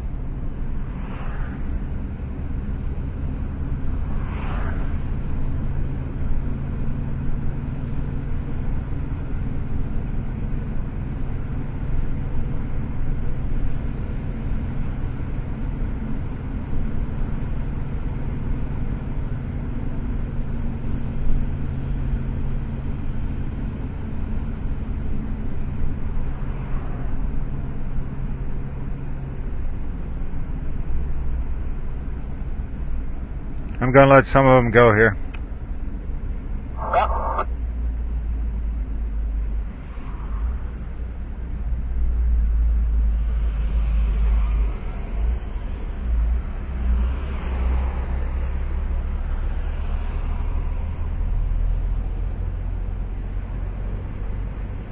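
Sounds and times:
car engine and road noise: 0.0 - 54.9
brief higher sweep: 36.7 - 37.5.

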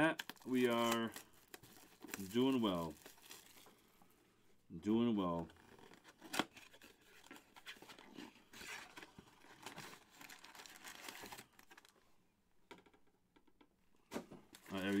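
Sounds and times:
wrapper crinkling and rustling: 0.0 - 3.8, 5.6 - 11.9, 14.6 - 15.0.

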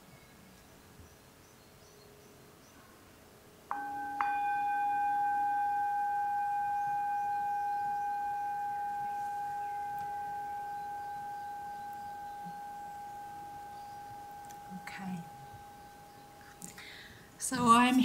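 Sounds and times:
metal singing bowl ringing: 3.7 - 16.4.

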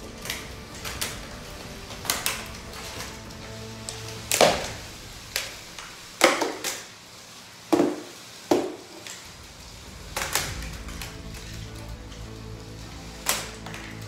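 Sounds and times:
plastic robots colliding with cracks: 3.9 - 6.9, 7.7 - 12.2, 13.2 - 14.0.

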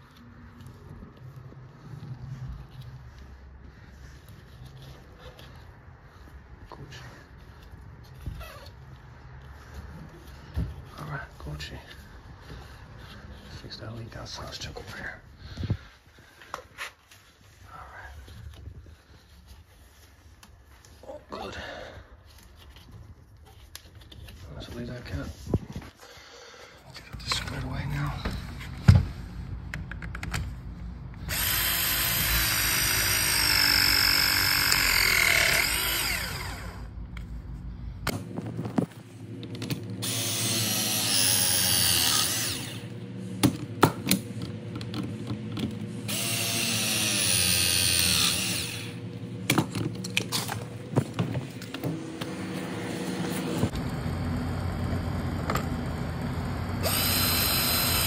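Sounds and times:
press tool motor whining: 31.2 - 37.0, 40.0 - 43.0, 46.0 - 50.6, 51.6 - 58.0.

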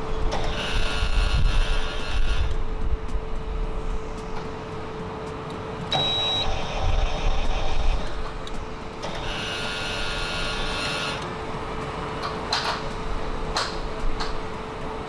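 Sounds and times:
metal detector humming: 5.9 - 8.2.

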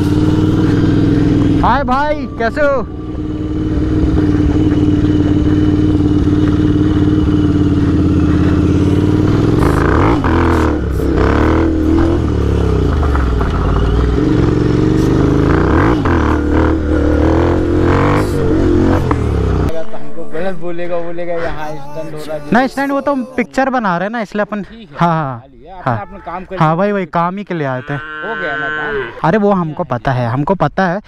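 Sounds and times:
motorcycle engine idling and revving: 0.0 - 19.9.

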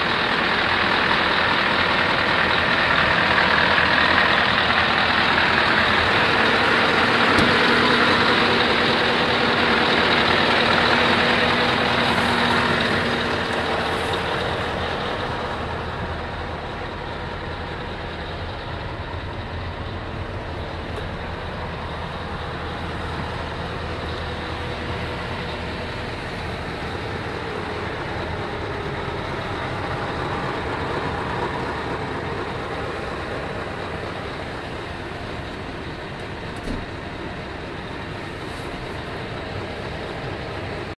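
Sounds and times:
diesel truck engine idling: 0.0 - 41.0.

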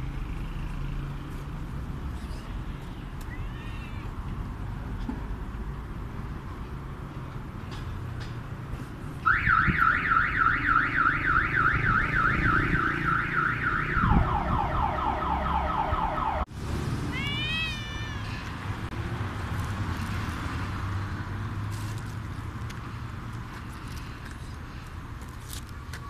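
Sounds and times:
cat meowing: 3.3 - 4.2, 17.1 - 18.5
car alarm warbling: 9.3 - 16.5.

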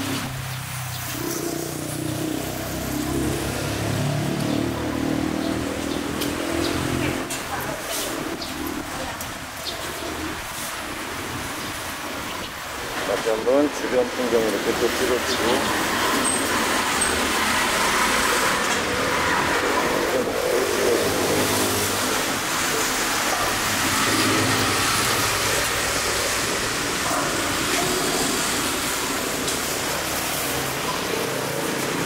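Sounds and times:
cars and scooters passing: 0.0 - 32.0.

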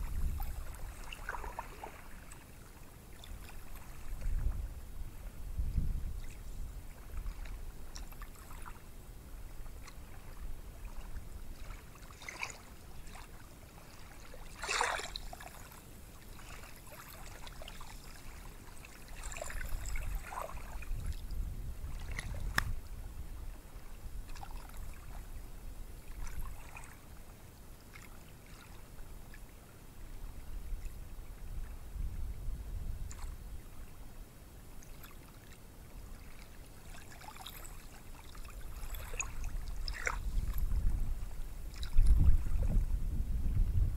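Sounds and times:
water splashes: 0.0 - 4.7, 6.1 - 8.9, 9.7 - 22.8, 23.7 - 25.2, 26.0 - 27.3, 27.9 - 28.8, 34.8 - 42.9
small waves breaking on a beach: 0.0 - 32.3, 33.0 - 42.7.

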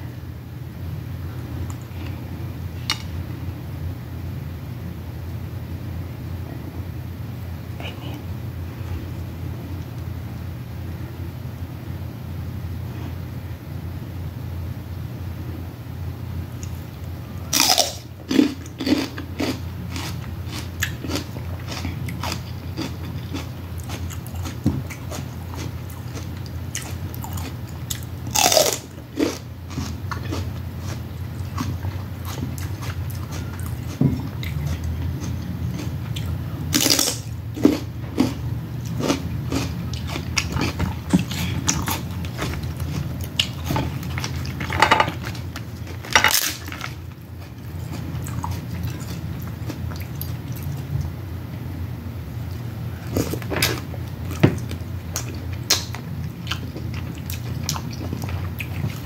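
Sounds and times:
chewing and mouth sounds: 17.5 - 51.1, 52.5 - 59.0.

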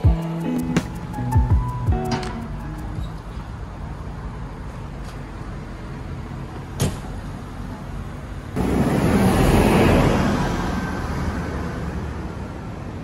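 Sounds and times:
low rumble of road vehicles: 0.8 - 13.0
vehicle passing close by: 8.6 - 12.6.

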